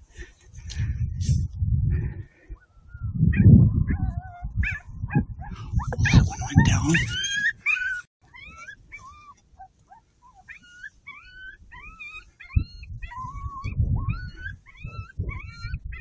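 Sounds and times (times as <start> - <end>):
low rumbling: 0.7 - 7.2
coyote yips and whimpers: 2.5 - 16.0.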